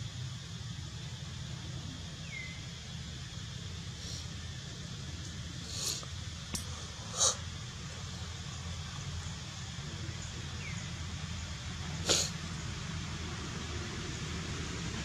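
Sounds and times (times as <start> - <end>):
steady low hum: 0.0 - 15.0
macaque calls: 7.1 - 7.4.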